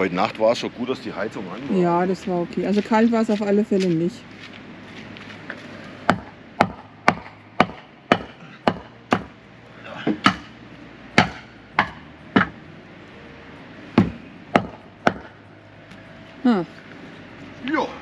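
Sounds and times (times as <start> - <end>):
sharp knocks of blows: 6.1 - 9.3.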